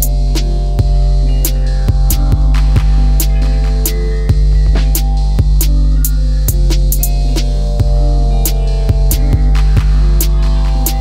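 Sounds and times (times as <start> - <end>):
low bass drone: 0.0 - 11.0
music with drum beat: 0.0 - 11.0.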